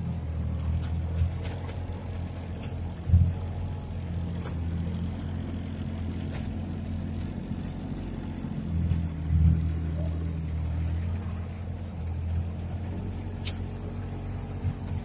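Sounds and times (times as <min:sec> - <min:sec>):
vehicle engine running: 0:00.0 - 0:15.0
light ticks: 0:04.4 - 0:08.2.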